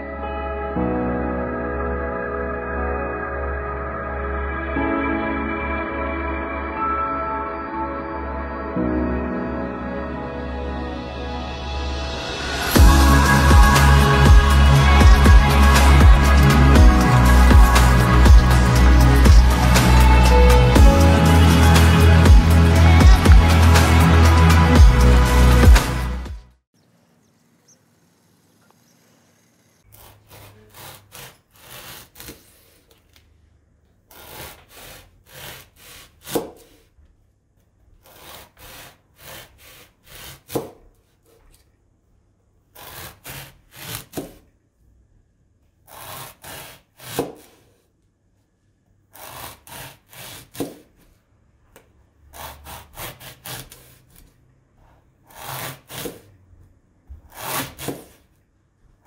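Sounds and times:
knife sawing through foam: 29.9s - 33.0s, 34.1s - 36.9s, 38.0s - 40.8s, 42.8s - 44.4s, 45.8s - 47.8s, 49.1s - 50.9s, 52.3s - 54.3s, 55.2s - 56.3s, 57.2s - 58.3s.

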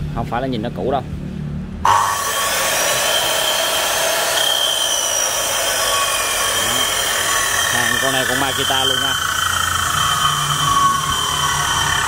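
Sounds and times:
circular saw running: 1.9s - 12.0s.

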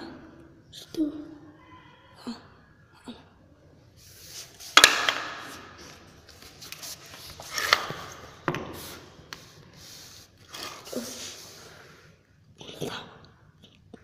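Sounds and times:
rubbing and rustling: 4.0s - 11.7s.

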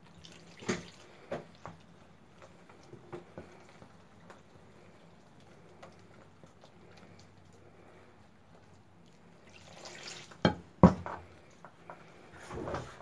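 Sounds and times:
water pouring into bowl: 0.0s - 1.8s, 9.0s - 10.4s
hand mixing dough: 0.0s - 13.0s.

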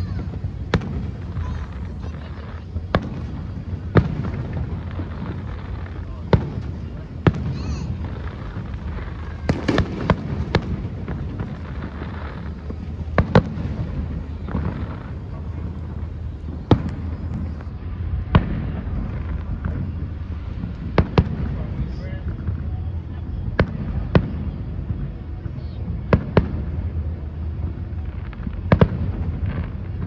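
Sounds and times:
distant fireworks bangs: 0.0s - 30.0s
low rumble: 0.0s - 30.0s.

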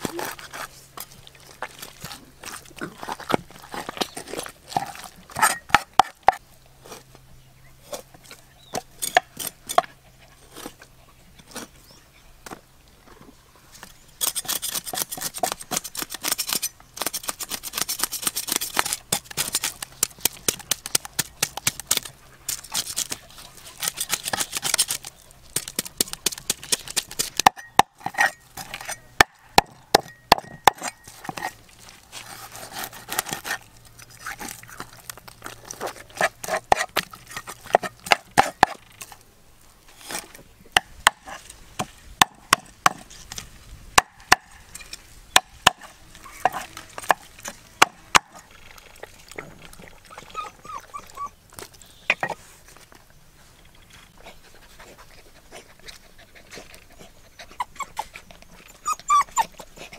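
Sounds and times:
knife scraping fish scales: 3.7s - 6.4s, 14.2s - 29.1s, 30.4s - 35.0s, 35.6s - 39.2s.

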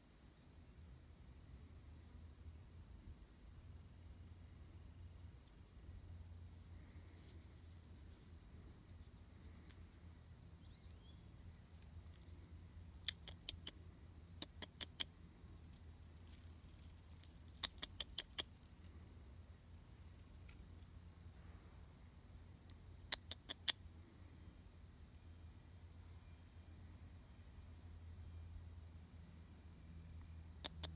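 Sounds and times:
insects chirring: 0.0s - 30.9s
sharp high clicks: 13.0s - 13.8s, 14.4s - 15.2s, 17.2s - 18.6s, 23.1s - 23.8s, 30.6s - 30.9s.

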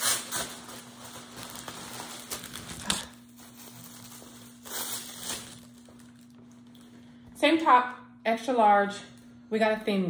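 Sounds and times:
packaging crinkling: 0.0s - 7.0s.

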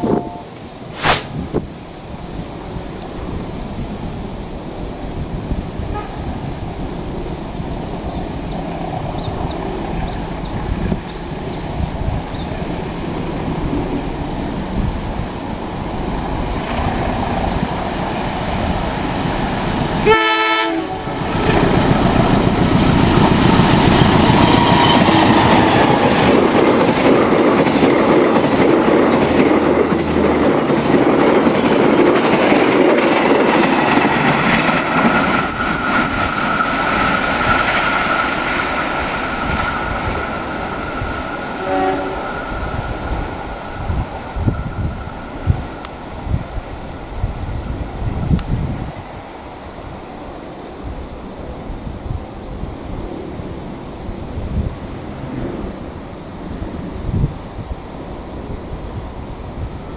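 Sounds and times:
train passing at speed: 0.0s - 59.9s
wheels clacking on rail joints: 21.2s - 41.6s.

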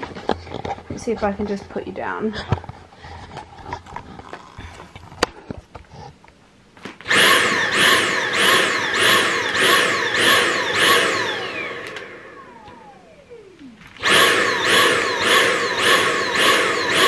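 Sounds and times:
handheld vacuum pulsing: 7.0s - 17.0s
vacuum falling whine: 8.9s - 17.0s.

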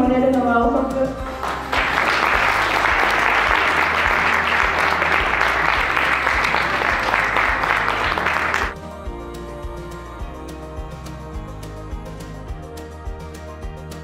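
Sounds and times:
soft background music: 0.0s - 14.0s
audience applause: 1.3s - 8.8s.

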